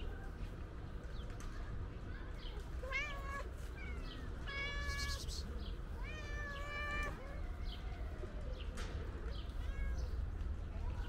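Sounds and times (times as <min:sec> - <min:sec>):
cat meowing: 0:02.8 - 0:07.9.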